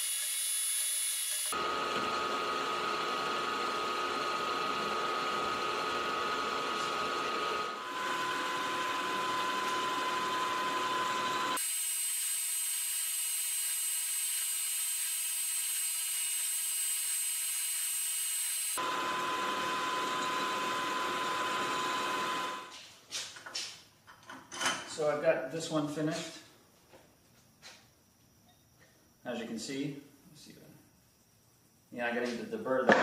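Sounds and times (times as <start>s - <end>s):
milling machine whine: 0.0s - 22.7s.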